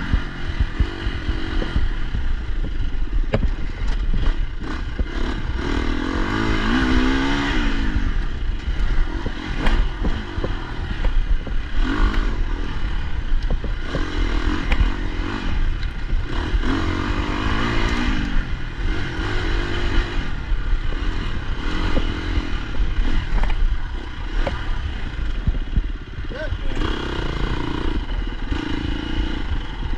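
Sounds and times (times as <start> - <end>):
motorcycle engine revving: 0.0 - 29.9
bike clattering over bumps: 0.2 - 5.6, 8.2 - 18.1, 19.5 - 26.2.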